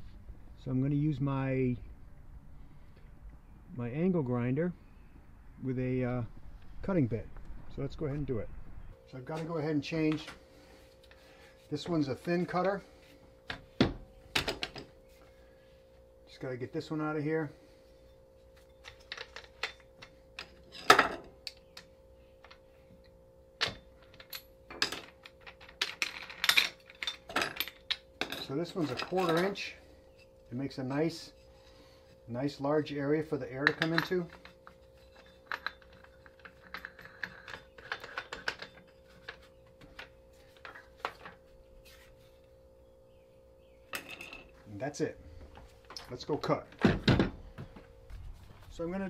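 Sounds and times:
faint steady hum: 0:00.0 - 0:49.0
metal tool parts clicking: 0:33.6 - 0:39.4.

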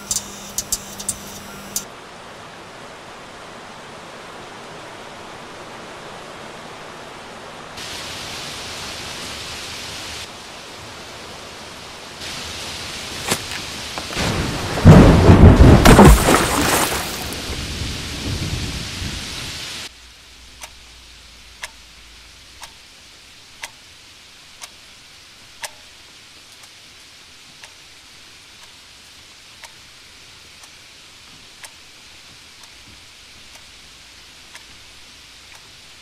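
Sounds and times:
alarm clock ticking: 0:00.0 - 0:01.8
rain: 0:00.0 - 0:36.0
thunder rumble: 0:14.1 - 0:19.6.

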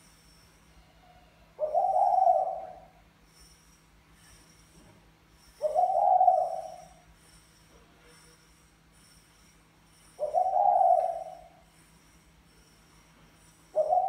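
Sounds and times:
dove cooing: 0:01.6 - 0:02.9, 0:05.6 - 0:07.0, 0:10.2 - 0:11.5, 0:13.8 - 0:14.0.

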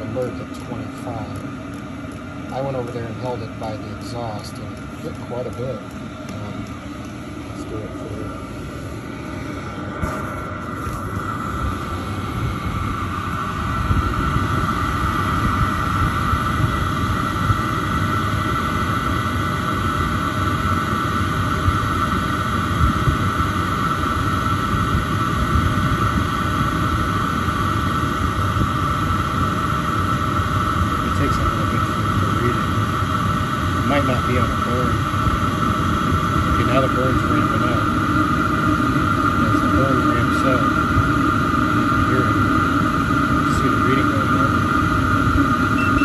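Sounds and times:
heater exhaust rumble: 0:00.0 - 0:46.0
high-pitched whine: 0:00.0 - 0:46.0.

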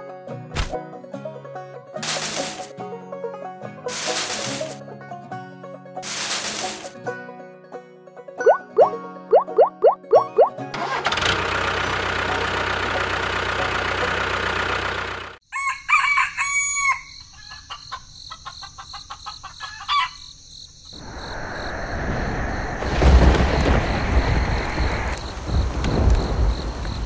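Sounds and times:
engine-like drone: 0:10.8 - 0:15.4
rooster crowing: 0:15.5 - 0:20.4
hens clucking: 0:17.3 - 0:20.2
low rumble of thunder: 0:21.0 - 0:27.0
rain: 0:21.0 - 0:27.0.

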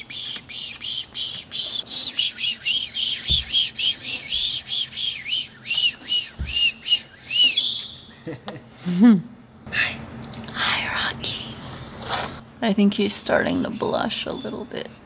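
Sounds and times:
short whistled chirps: 0:00.0 - 0:08.1.

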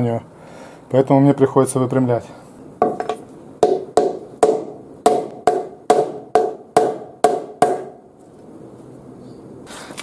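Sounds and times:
hammer striking metal plate: 0:02.9 - 0:08.0.

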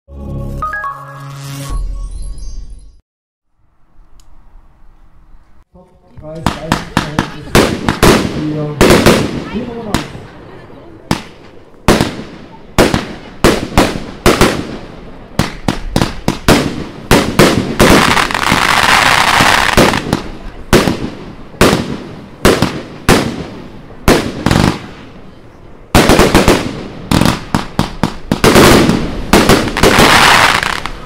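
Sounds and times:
fireworks bangs: 0:06.2 - 0:31.0
fireworks crackling hiss: 0:06.4 - 0:31.0.

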